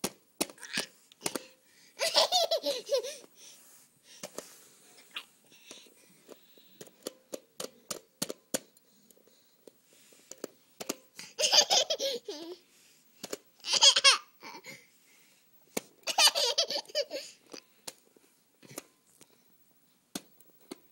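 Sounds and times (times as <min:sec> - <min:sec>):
toddler laughing: 0:02.0 - 0:03.2, 0:11.4 - 0:12.6, 0:13.6 - 0:14.6, 0:16.0 - 0:17.4.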